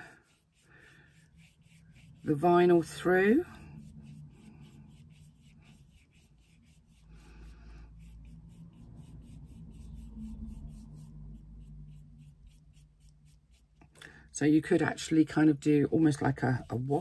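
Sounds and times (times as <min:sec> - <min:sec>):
paintbrush strokes: 0:00.0 - 0:17.0
low rumble: 0:07.0 - 0:13.2.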